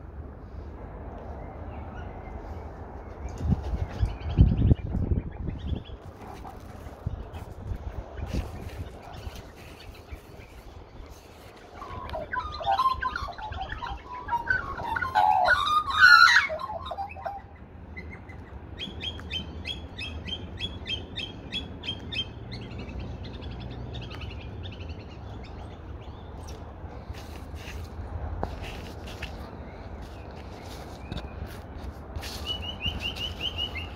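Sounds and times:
magpies warbling and squawking: 11.6 - 26.6.

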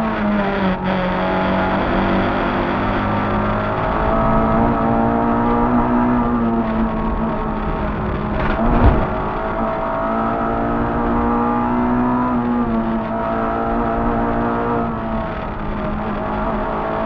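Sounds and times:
rally car engine running hard: 0.0 - 17.0
sharp thump: 8.3 - 9.3.

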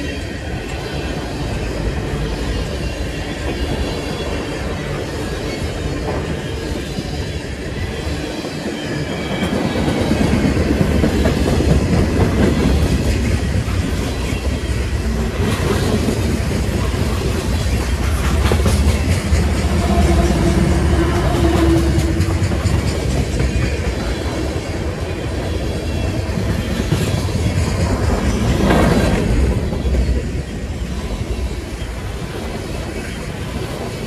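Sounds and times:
diesel locomotive engine hum: 0.0 - 34.0
freight train rumbling past: 0.0 - 34.0
wheels clicking over rail joints: 8.5 - 30.6.

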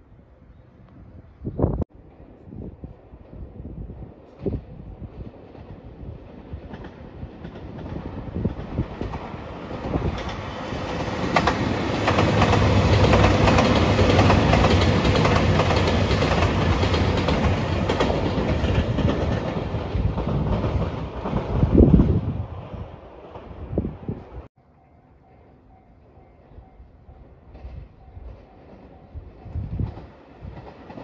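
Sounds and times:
wheels clacking over rail joints: 5.4 - 21.8.

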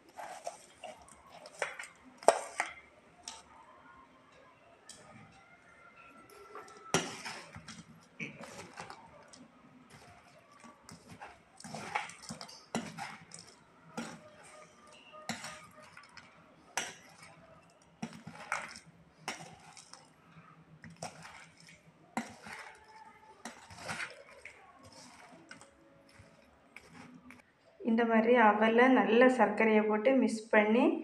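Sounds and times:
metal spoon scraping a plate: 6.2 - 20.1, 20.8 - 27.4.

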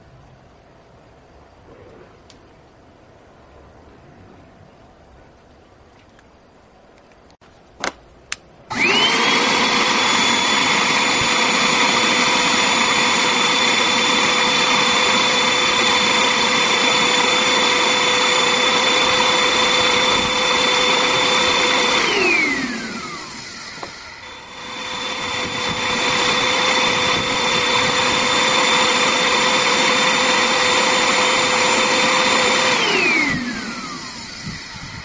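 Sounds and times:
vacuum cleaner motor whining: 8.7 - 35.0.

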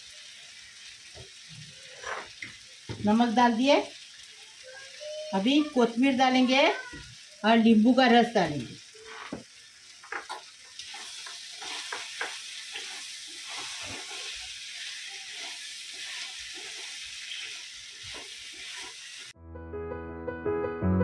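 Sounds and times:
food sizzling in a wok: 0.0 - 19.4
spatula stirring and scraping: 1.8 - 2.4, 10.0 - 19.3.

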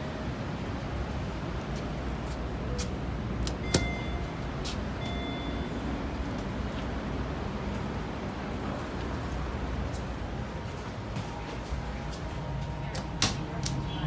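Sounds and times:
elevator doors sliding open: 2.7 - 7.9
elevator click: 3.4 - 4.4
short high beeps: 3.6 - 5.9.

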